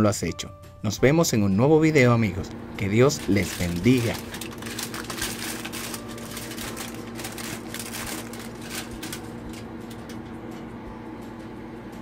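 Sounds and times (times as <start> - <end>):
steady low hum: 1.9 - 12.0
aluminium foil crinkling: 2.8 - 10.2.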